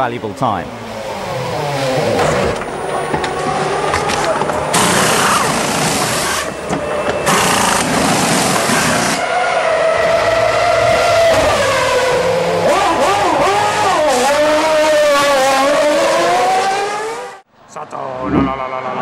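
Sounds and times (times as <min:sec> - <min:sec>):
racing car engine at high revs: 0:00.4 - 0:17.5
pneumatic wheel guns hissing: 0:04.8 - 0:06.6, 0:07.2 - 0:09.2.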